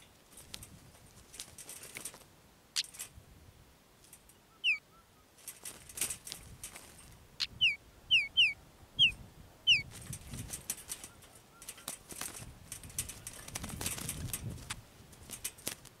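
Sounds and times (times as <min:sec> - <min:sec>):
bird wings flapping: 0:00.0 - 0:03.1, 0:05.4 - 0:07.2, 0:09.8 - 0:16.0
bird struggling against wire trap: 0:00.0 - 0:03.2, 0:05.4 - 0:07.6, 0:09.7 - 0:16.0.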